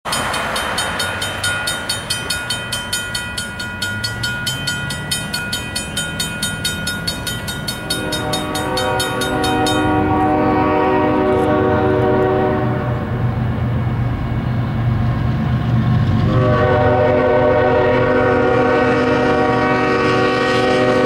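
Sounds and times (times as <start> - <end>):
railroad crossing bell ringing: 0.1 - 13.2
locomotive air horn: 7.8 - 13.2, 16.2 - 21.0.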